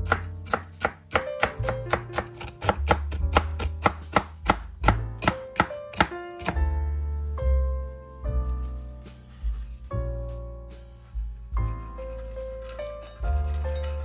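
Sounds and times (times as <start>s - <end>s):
knife chopping on wooden board: 0.0s - 6.6s.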